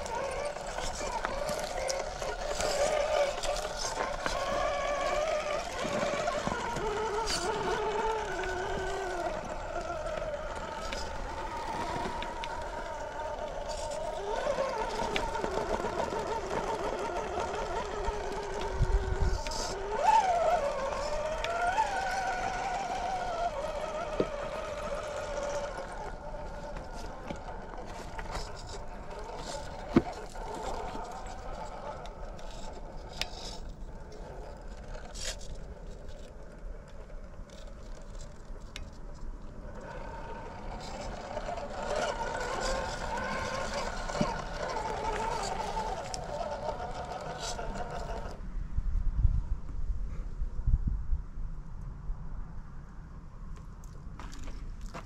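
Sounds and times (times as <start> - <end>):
electric motor whine: 0.0 - 48.4
wind on microphone: 48.6 - 51.6.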